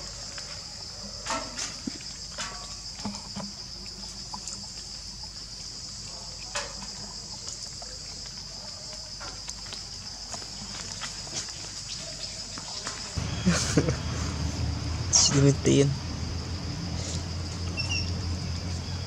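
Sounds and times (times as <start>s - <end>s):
high-pitched insect drone: 13.2s - 19.0s.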